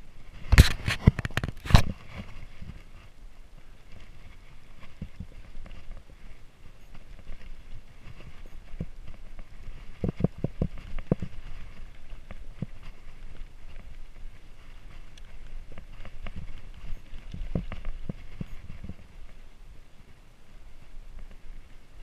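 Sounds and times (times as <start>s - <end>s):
bike knocking and rattling: 0.5s - 2.8s, 7.0s - 19.4s.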